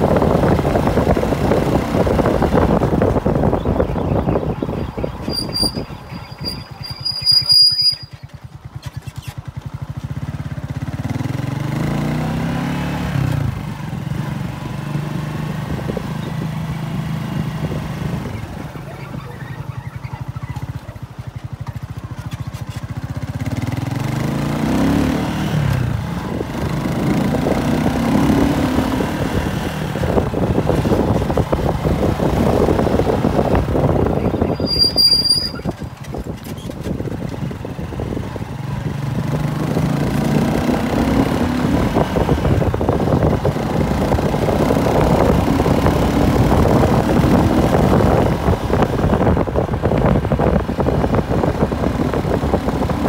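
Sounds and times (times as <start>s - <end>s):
motorcycle engine revving: 0.0s - 53.0s
wind and road noise: 0.0s - 53.0s
high squeal: 5.2s - 8.3s, 34.4s - 35.8s.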